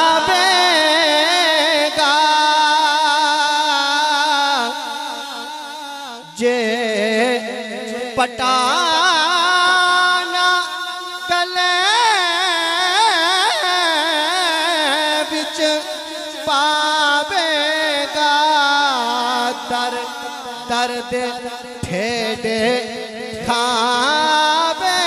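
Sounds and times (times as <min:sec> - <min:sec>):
man singing devotional verse: 0:00.0 - 0:25.0.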